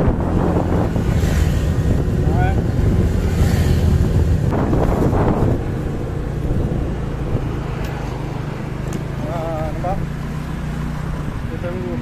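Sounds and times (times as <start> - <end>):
wind buffeting microphone: 0.0 - 8.8
motorcycle engine running: 0.0 - 12.0.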